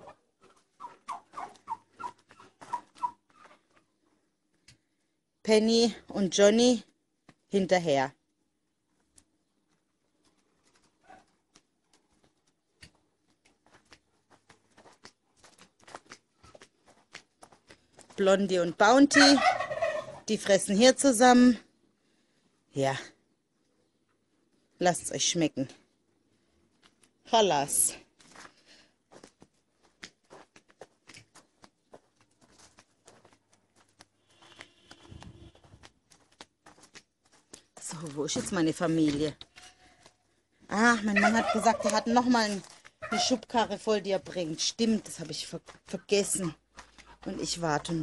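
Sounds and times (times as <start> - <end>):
footsteps on dirt and straw: 0.1 - 4.2, 8.9 - 20.6, 26.6 - 48.0.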